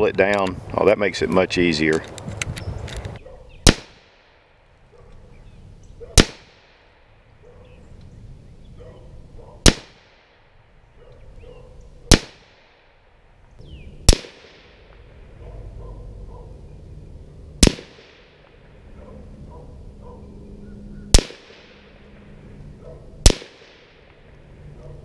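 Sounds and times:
rifle shots with echo: 3.6s - 4.6s, 6.2s - 7.2s, 9.6s - 10.6s, 12.1s - 13.2s, 14.0s - 15.4s, 17.6s - 18.8s, 21.1s - 22.3s, 23.2s - 24.6s.

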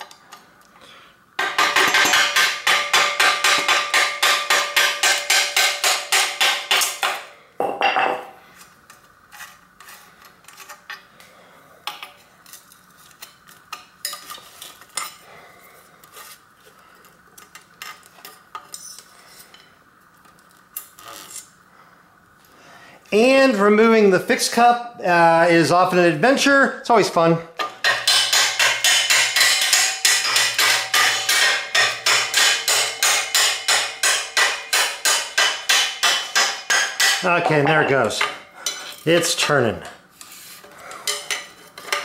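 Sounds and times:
metal clank: 27.6s - 38.9s.

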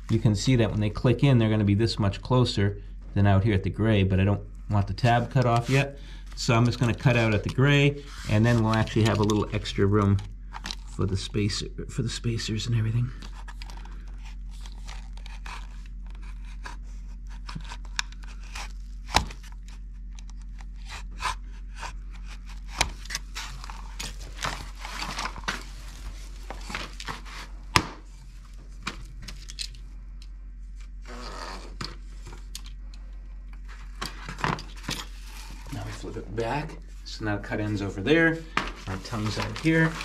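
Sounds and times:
utility knife scraping vinyl: 13.3s - 19.9s, 20.6s - 25.2s.

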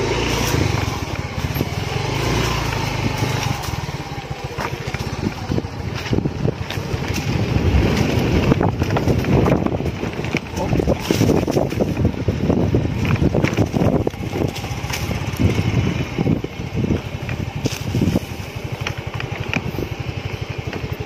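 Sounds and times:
knocks and rattles from bumps: 0.0s - 15.6s
motorcycle engine running: 0.0s - 21.0s.

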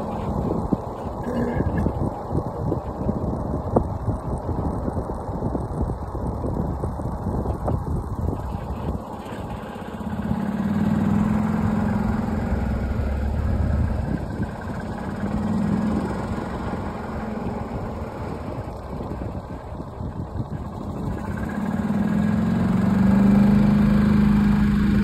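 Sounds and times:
road rumble: 0.0s - 25.0s
steady low hum: 0.0s - 25.0s
vehicle engine running: 0.0s - 25.0s.

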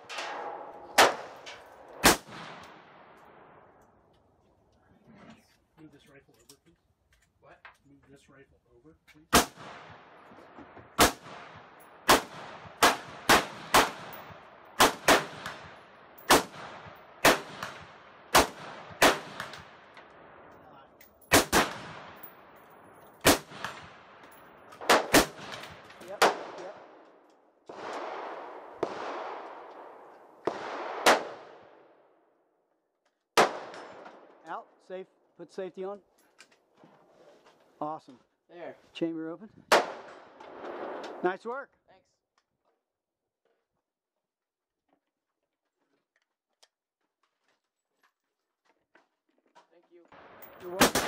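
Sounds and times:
rifle shots echoing: 0.0s - 3.8s, 9.3s - 20.5s, 21.3s - 22.6s, 23.2s - 32.1s, 33.4s - 34.5s, 39.7s - 41.2s, 50.1s - 51.0s.

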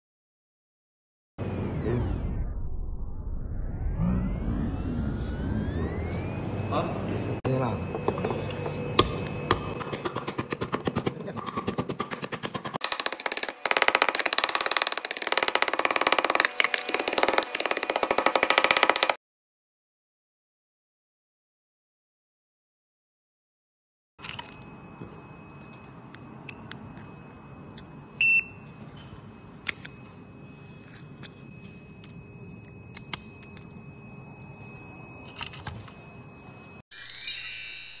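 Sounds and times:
faint steady high tone: 5.5s - 9.9s, 24.2s - 38.0s
hammer chipping ice: 9.0s - 19.2s
bright logo jingle: 36.9s - 38.0s.

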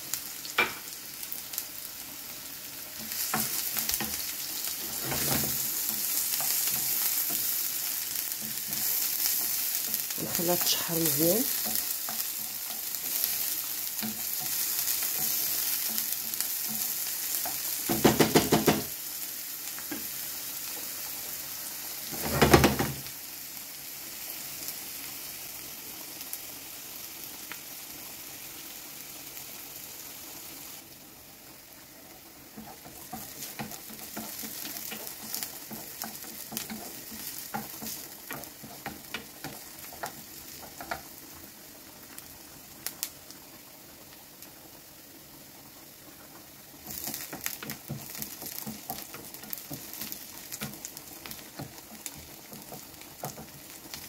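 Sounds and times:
onion sizzling in oil: 0.0s - 54.0s
spatula scraping a pan: 3.0s - 18.0s, 32.6s - 41.1s.

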